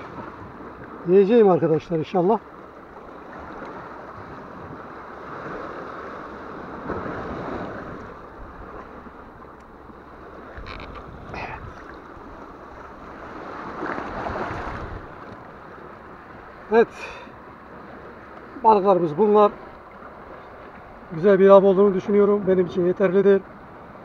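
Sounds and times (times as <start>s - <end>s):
water lapping against rocks: 2.5s - 18.6s.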